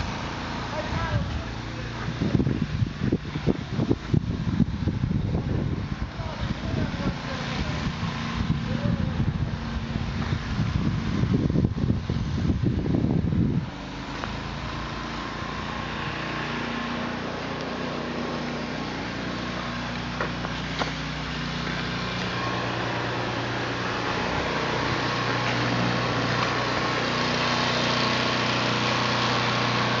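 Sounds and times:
small engine running: 0.0 - 30.0
wind buffeting microphone: 0.8 - 14.0.

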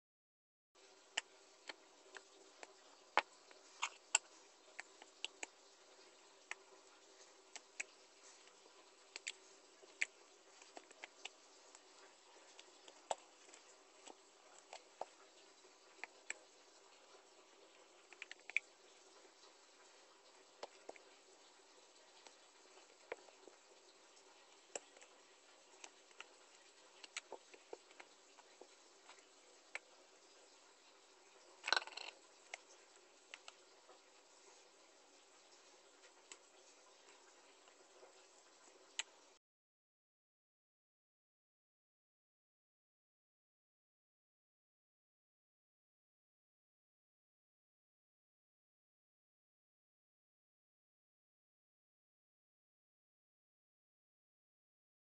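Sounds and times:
faint steady hum: 0.8 - 39.4.

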